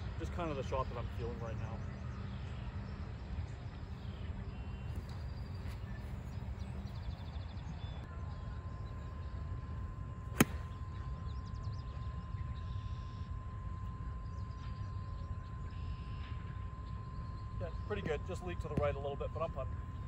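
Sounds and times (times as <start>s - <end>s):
low rumble of wind: 0.0s - 20.0s
distant background noise: 0.1s - 20.0s
golf club striking ball: 10.3s - 10.8s.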